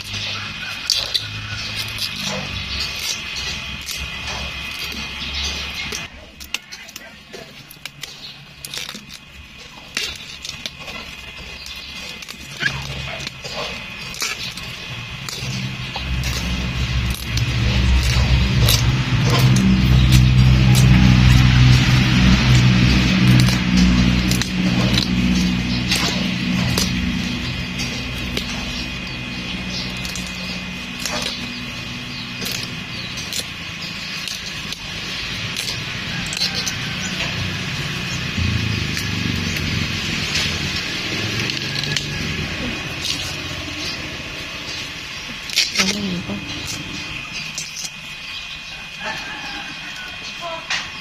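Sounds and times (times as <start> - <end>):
stems rustling: 0.0 - 50.9
low engine rumble: 0.0 - 51.0
bamboo stems snapping: 5.8 - 44.1, 44.7 - 48.1.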